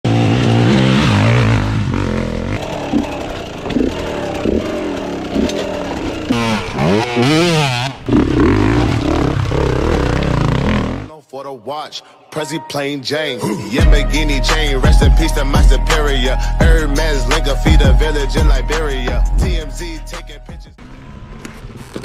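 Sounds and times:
dirt bike engines revving: 0.1 - 11.1, 20.8 - 22.0.

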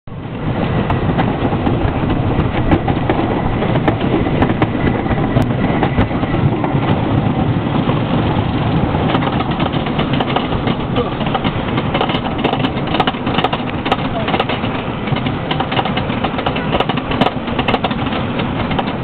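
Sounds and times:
roller coaster rumbling on track: 0.1 - 19.0
rapid wheel clacks: 0.9 - 19.0.

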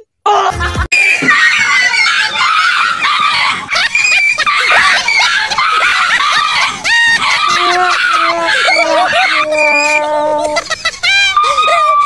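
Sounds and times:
dog yelping and barking: 1.3 - 12.0.

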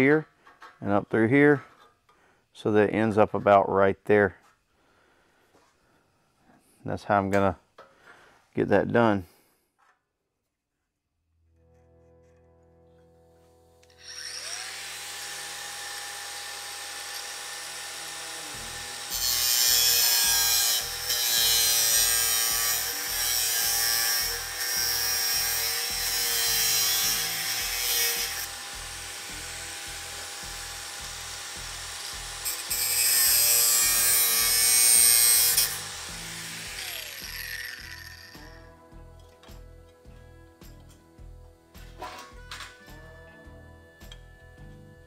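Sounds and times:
angle grinder whine: 11.9 - 21.3, 25.5 - 38.6
grinder cutting sheet metal: 13.8 - 38.6.

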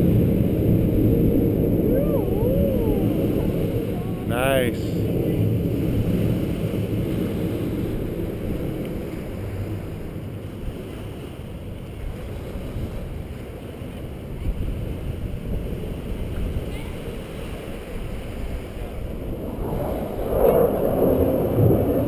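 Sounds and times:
distant jet roar: 0.0 - 10.6, 18.9 - 22.0
wind on microphone: 0.0 - 22.0.

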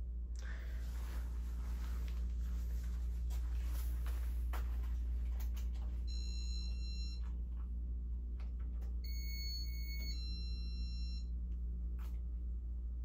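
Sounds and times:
ceiling fan low hum: 0.0 - 13.0
electronic chime beep: 9.0 - 11.3.

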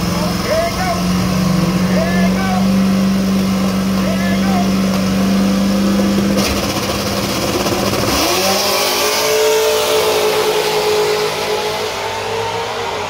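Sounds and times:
drag car engines roaring: 0.0 - 13.0.

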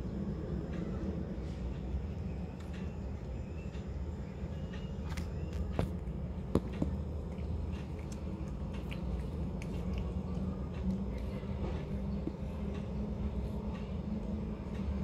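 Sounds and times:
steady low hum: 0.0 - 15.0
cat chewing and crunching food: 4.4 - 15.0.

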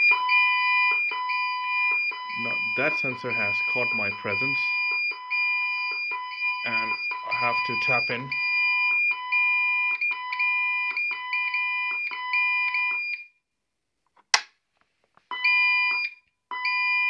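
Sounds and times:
alarm keypad warning tone: 0.0 - 8.6
sharp click: 14.2 - 14.5.

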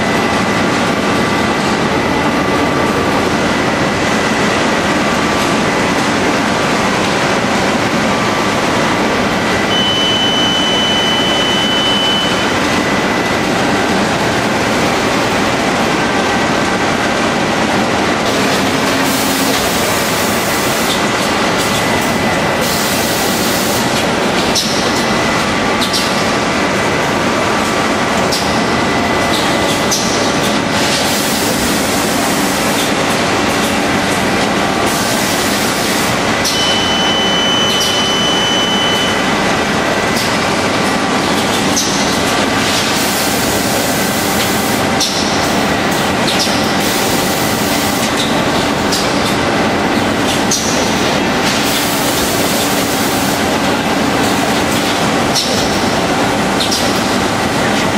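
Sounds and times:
machinery and conveyor noise: 0.0 - 57.9
thin high beep: 9.7 - 12.6, 36.5 - 39.2.

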